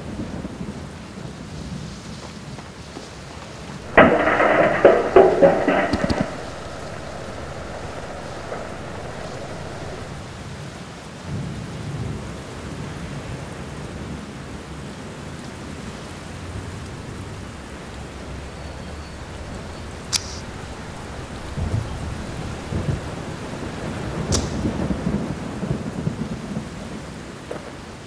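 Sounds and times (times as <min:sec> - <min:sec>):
steady rain: 0:00.0 - 0:28.0
low rumbles of thunder: 0:02.9 - 0:10.5, 0:16.5 - 0:27.1
sharp click: 0:20.0 - 0:21.5, 0:24.3 - 0:24.7.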